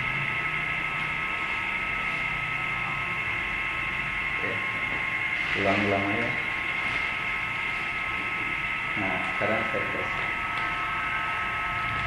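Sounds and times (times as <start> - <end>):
conveyor belt humming: 0.0 - 12.0
metal detector high whine: 0.0 - 12.0.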